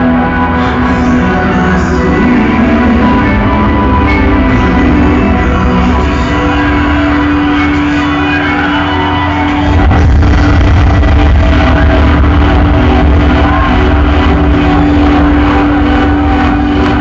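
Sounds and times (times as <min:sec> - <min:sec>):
loud electronic club music: 0:00.0 - 0:17.0.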